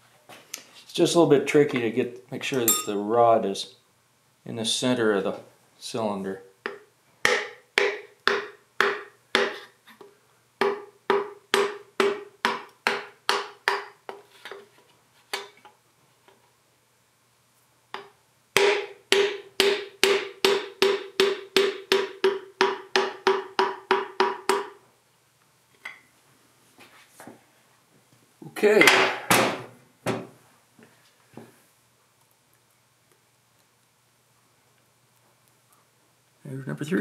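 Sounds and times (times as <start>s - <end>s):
hammer tapping wooden dowel: 6.6s - 14.2s, 18.0s - 24.8s.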